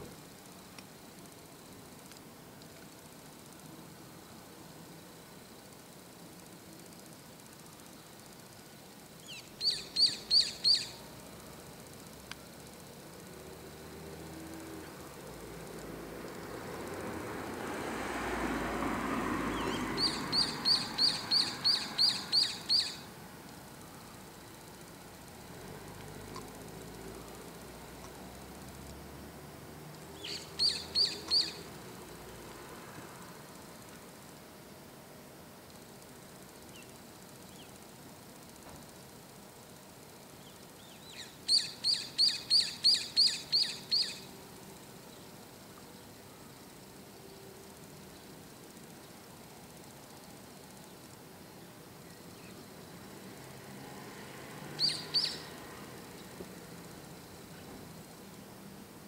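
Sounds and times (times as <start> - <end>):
bird calling high sweeping notes: 9.3 - 10.9, 19.6 - 23.1, 30.2 - 31.6.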